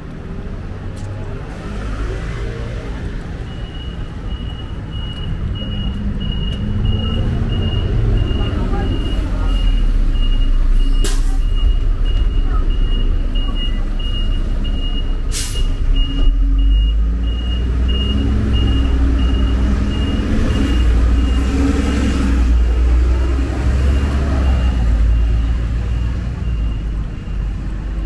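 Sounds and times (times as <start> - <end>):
heavy traffic rumble: 0.0 - 28.0
high electronic beeps: 3.4 - 22.7.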